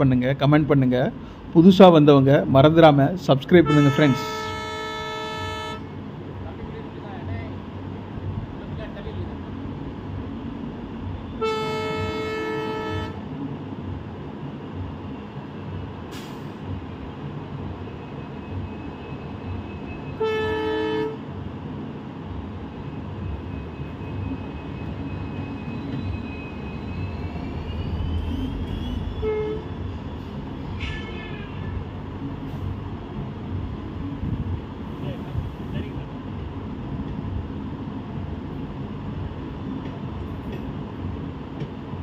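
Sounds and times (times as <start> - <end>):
locomotive engine and wheels rumbling: 0.0 - 42.0
train horn blasts: 3.6 - 6.0, 11.3 - 13.2, 19.7 - 21.2, 28.2 - 29.9, 30.7 - 31.9.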